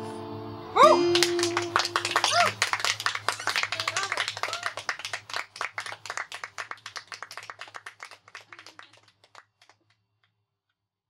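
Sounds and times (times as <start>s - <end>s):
people clapping: 1.0s - 10.0s.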